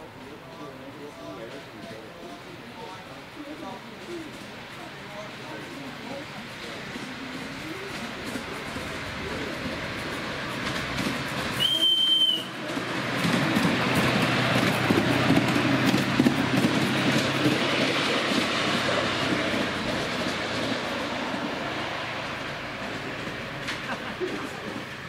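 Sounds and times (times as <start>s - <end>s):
train rumbling past: 0.0s - 25.0s
wheels clicking over rail joints: 3.9s - 21.2s, 22.0s - 25.0s
steam locomotive whistle blast: 11.6s - 12.6s.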